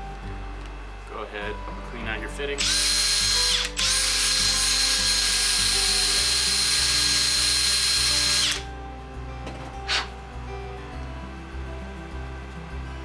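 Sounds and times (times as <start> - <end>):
cordless drill running: 2.6 - 8.7.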